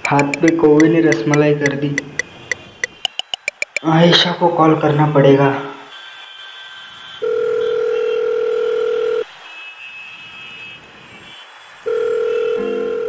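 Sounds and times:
phone ringback tone: 7.2 - 9.2, 11.9 - 13.0.

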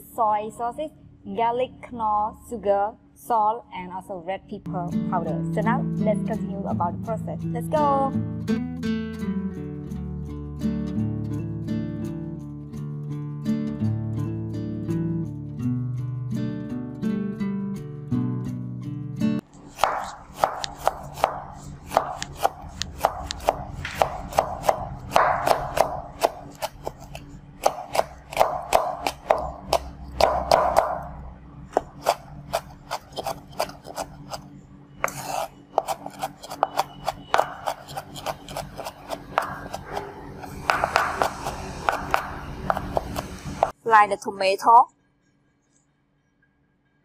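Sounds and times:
guitar music: 4.7 - 34.6
knife chopping on cutting board: 19.7 - 31.1, 31.7 - 34.4, 35.0 - 43.8.

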